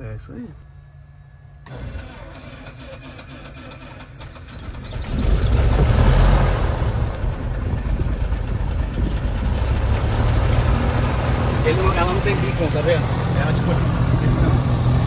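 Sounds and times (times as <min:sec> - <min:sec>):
aircraft engine idling: 0:01.6 - 0:05.6, 0:06.6 - 0:15.0
engine starter cranking: 0:01.6 - 0:05.9.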